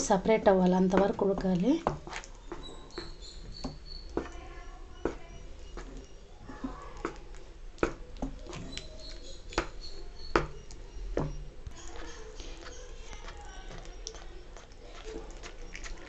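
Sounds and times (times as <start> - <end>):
sticky mass squelching: 0.1 - 16.0
spatula knocking against pan: 0.9 - 4.4, 5.0 - 7.2, 7.8 - 8.8, 9.5 - 11.4.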